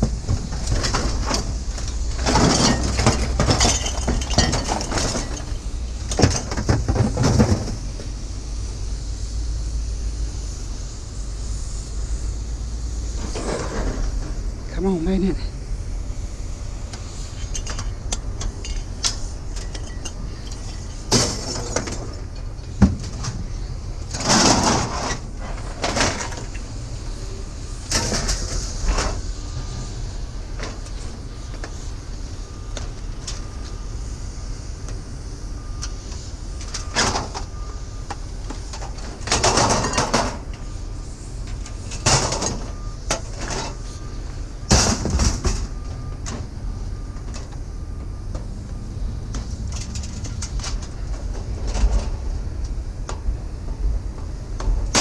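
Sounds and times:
metal scraping and rattling: 0:00.0 - 0:08.1, 0:13.0 - 0:14.8, 0:17.1 - 0:26.8, 0:38.7 - 0:40.7, 0:41.4 - 0:44.0, 0:49.3 - 0:52.5
steady low rumble: 0:00.0 - 0:55.0.

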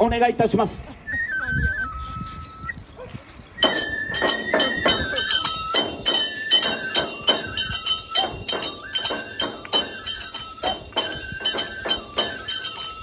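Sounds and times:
bamboo flute melody: 0:01.1 - 0:02.9, 0:03.6 - 0:13.0
hand cymbals ringing: 0:03.6 - 0:13.0
jingling bells: 0:03.6 - 0:13.0
taiko drum strokes: 0:03.6 - 0:13.0.

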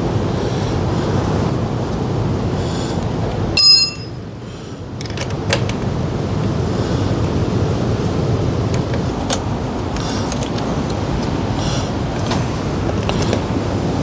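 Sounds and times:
metal tool clinking: 0:03.6 - 0:04.2.

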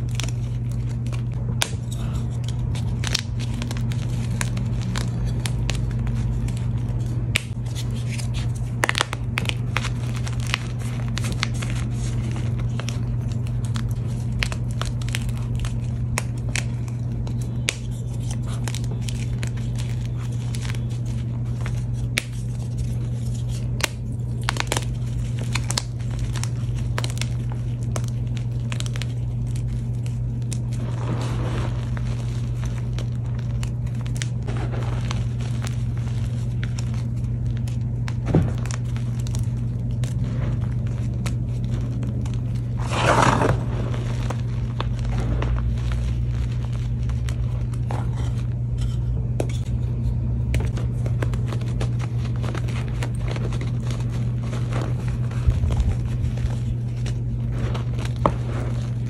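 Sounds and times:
steady low hum: 0:00.0 - 0:59.0
chalk crunching and snapping: 0:50.6 - 0:59.0.

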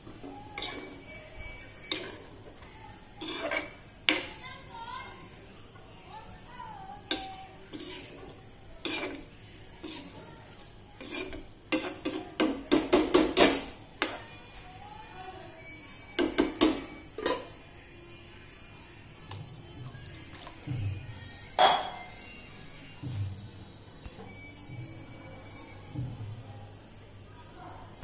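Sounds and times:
spatula knocking on pan: 0:11.8 - 0:14.2, 0:16.2 - 0:17.4.

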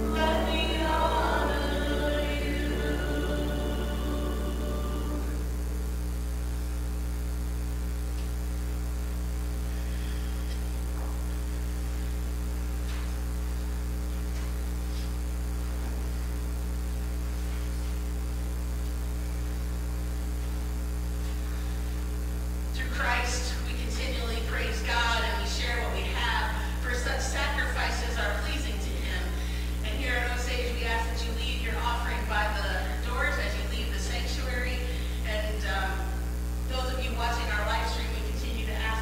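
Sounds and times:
hymn singing: 0:00.0 - 0:05.7, 0:22.8 - 0:36.1
electrical mains hum: 0:00.0 - 0:39.0.

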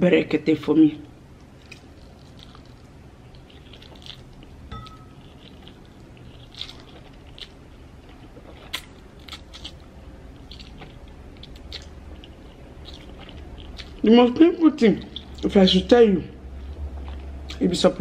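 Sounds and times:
wet chewing: 0:01.4 - 0:14.2, 0:16.7 - 0:17.8.

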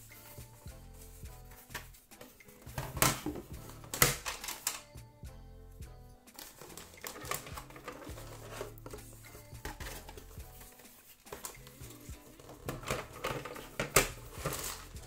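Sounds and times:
background music: 0:00.0 - 0:15.0
plastic game parts clattering: 0:02.7 - 0:04.8, 0:06.4 - 0:08.8, 0:12.4 - 0:14.9.

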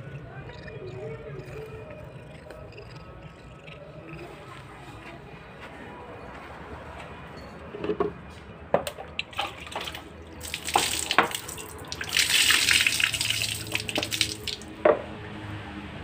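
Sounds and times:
water pouring and splashing: 0:09.2 - 0:14.8.

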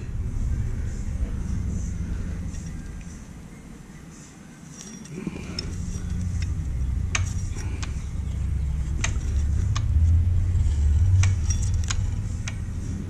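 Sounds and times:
low rumble: 0:00.0 - 0:04.0, 0:05.3 - 0:13.0
sharp metallic clicks: 0:04.8 - 0:13.0.

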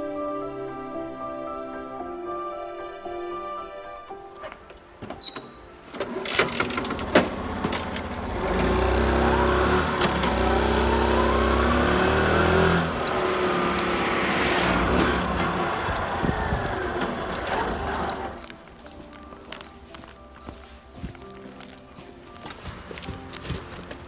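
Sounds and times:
motorcycle engine pulling away: 0:06.0 - 0:18.6
knocks and clicks: 0:12.2 - 0:18.6.

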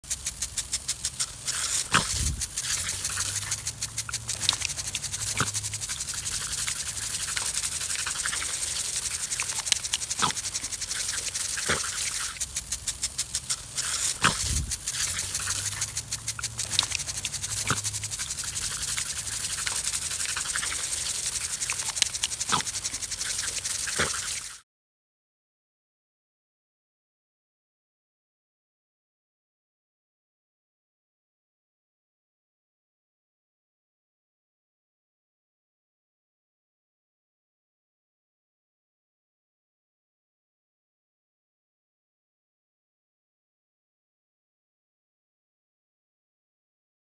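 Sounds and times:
sprinkler spraying and ticking: 0:00.0 - 0:24.6
dog snapping and grunting: 0:00.7 - 0:24.5.

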